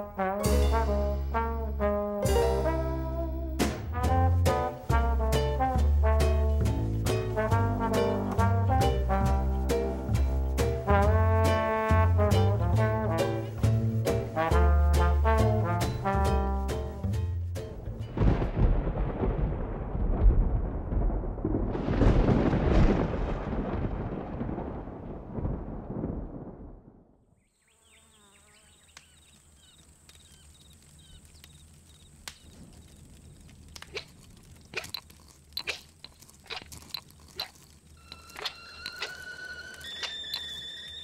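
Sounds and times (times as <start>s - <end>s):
sharp knocks and scrapes: 33.8s - 39.2s.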